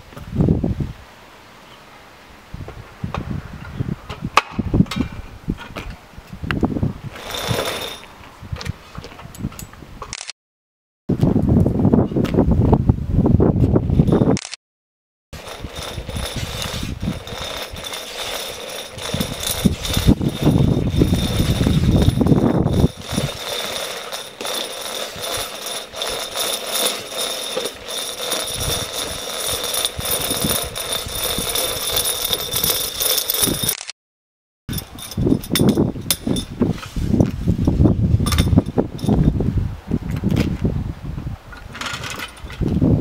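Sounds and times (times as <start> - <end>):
hose reel clicking and rattling: 7.1 - 8.1, 15.4 - 33.9, 34.7 - 36.6, 37.7 - 39.2.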